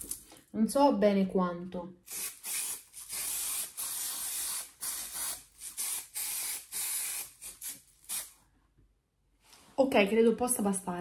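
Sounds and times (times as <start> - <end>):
aerosol spray hissing: 2.1 - 8.3.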